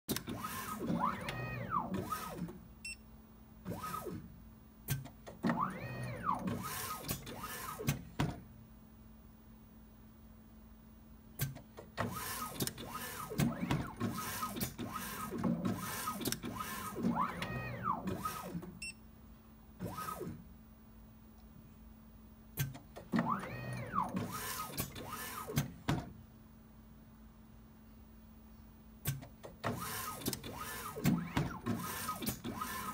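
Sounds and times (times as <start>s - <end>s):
robot motor whines: 0.4s - 2.4s, 5.5s - 7.8s, 12.2s - 18.6s, 23.2s - 25.6s
steady low hum: 6.0s - 29.7s.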